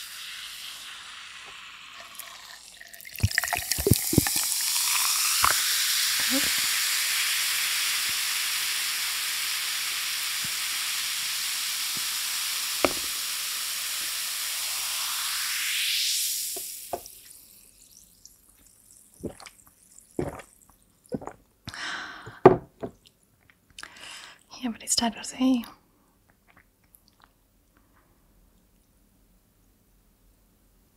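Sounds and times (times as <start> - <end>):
soda pouring over ice: 0.0 - 21.3
carbonation fizzing hiss: 0.0 - 22.4.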